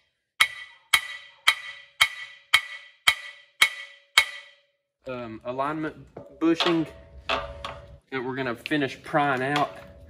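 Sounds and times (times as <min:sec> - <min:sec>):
hammer striking metal: 0:00.0 - 0:04.8, 0:06.2 - 0:08.0.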